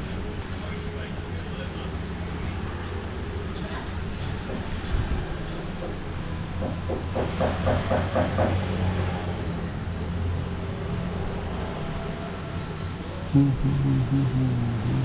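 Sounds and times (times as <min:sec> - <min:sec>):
low rumbling hum: 0:13.4 - 0:15.0.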